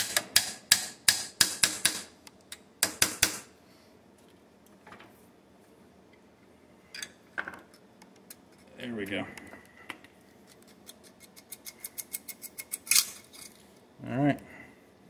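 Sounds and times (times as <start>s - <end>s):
hammer tapping metal punch: 0.0s - 2.1s.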